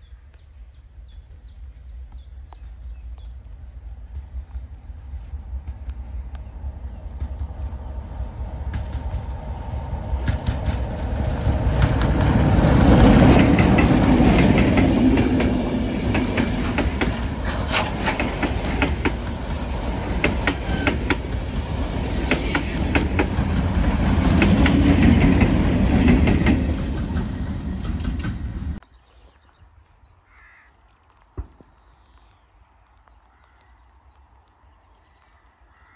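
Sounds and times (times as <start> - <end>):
diesel locomotive passing: 3.6 - 28.8
train wheels clicking over rail joints: 7.1 - 28.8.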